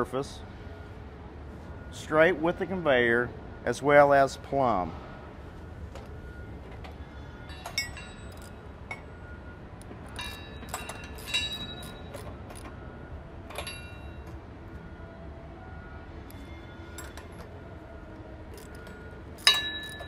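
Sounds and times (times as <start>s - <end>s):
steady low hum: 0.0s - 20.0s
wrench clinking on steel bolts: 7.5s - 9.1s, 9.8s - 12.7s, 13.5s - 14.3s, 16.3s - 17.5s, 18.5s - 20.0s.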